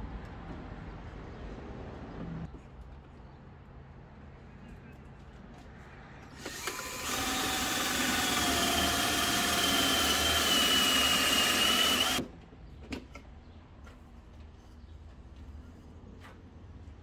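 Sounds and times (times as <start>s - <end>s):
cordless drill boring into wood: 6.4s - 12.2s.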